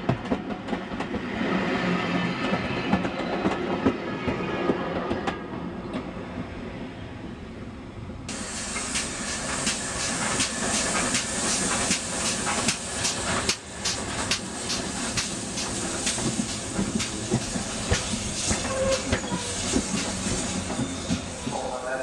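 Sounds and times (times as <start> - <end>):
steam locomotive chuffing beats: 8.3 - 22.0
steam locomotive hissing: 8.3 - 22.0.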